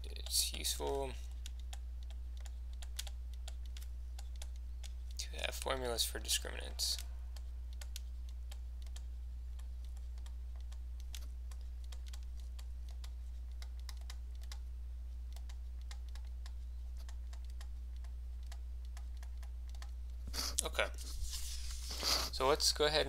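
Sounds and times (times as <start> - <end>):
stylus tapping and scratching: 0.0 - 22.3
low electrical hum: 0.0 - 23.0.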